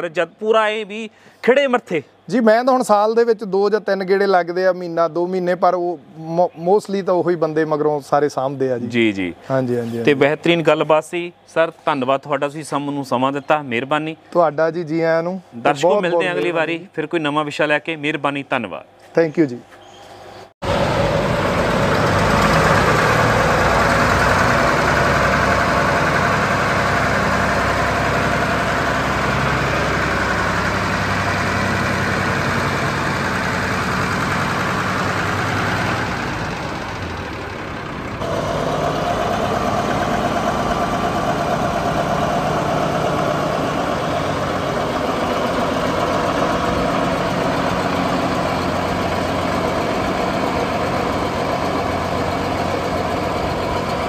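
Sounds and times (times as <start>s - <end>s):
tractor diesel engine running: 20.6s - 54.0s.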